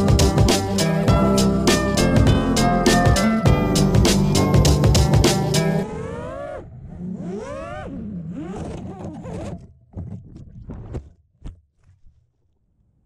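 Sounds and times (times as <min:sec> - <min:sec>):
drone motors whining: 0:05.7 - 0:09.6.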